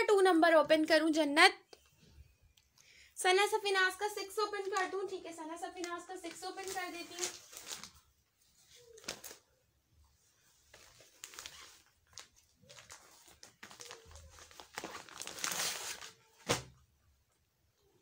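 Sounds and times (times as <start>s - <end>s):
plastic packaging crinkling: 4.4s - 8.1s, 8.8s - 9.4s, 10.6s - 16.8s.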